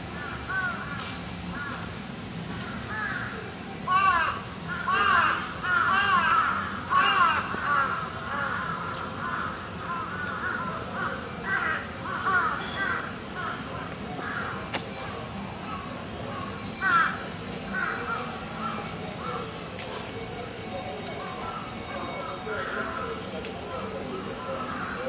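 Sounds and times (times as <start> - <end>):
crows cawing: 0.2 - 0.9, 2.6 - 13.6, 16.4 - 17.2, 17.8 - 19.4, 24.4 - 25.0.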